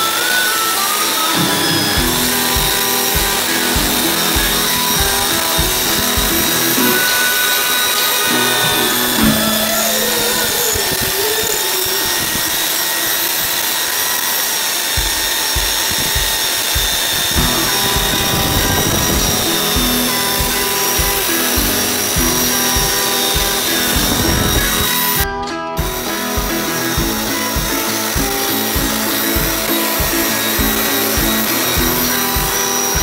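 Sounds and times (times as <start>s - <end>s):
background music: 0.0s - 11.1s, 17.3s - 33.0s
wood being sanded: 0.0s - 25.2s, 26.0s - 33.0s
belt sander whine: 0.0s - 33.0s
steady low beat: 2.0s - 7.3s, 15.0s - 33.0s.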